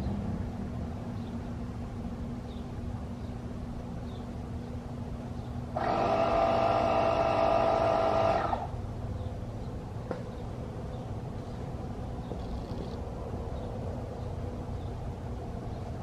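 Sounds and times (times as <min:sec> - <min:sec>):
tire inflator motor buzzing: 0:05.7 - 0:08.8.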